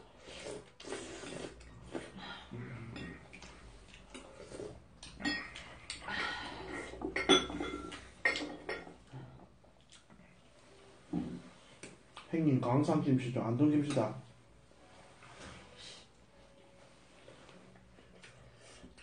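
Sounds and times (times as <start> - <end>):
utensils clinking on ceramic bowls: 5.0 - 9.0.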